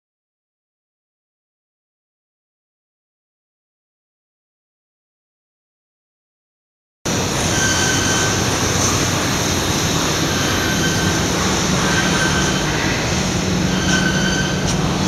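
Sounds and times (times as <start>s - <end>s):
foam splitting machine running: 7.1s - 15.0s.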